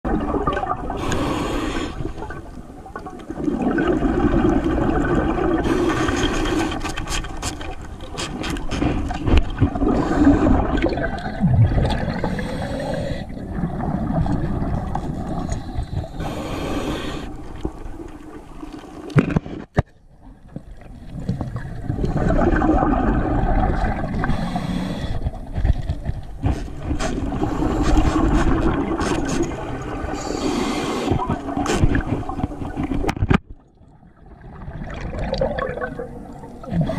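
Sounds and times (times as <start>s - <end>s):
diver's exhaled bubbles rushing: 0.1s - 1.1s, 3.0s - 6.7s, 8.8s - 16.2s, 20.9s - 24.5s, 26.4s - 30.4s, 33.8s - 36.9s
clicks and scrapes against rock: 6.2s - 9.6s, 19.1s - 20.0s.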